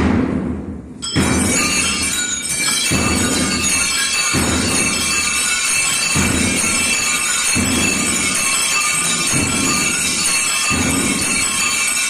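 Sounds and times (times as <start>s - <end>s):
drums beating slow march: 0.0s - 12.0s
metallic jingle: 1.0s - 12.0s
rattling drum roll: 1.0s - 12.0s.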